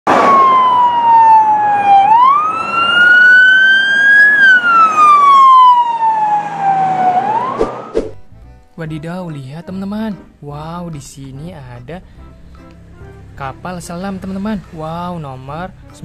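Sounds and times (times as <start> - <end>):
wailing siren: 0.1 - 8.0.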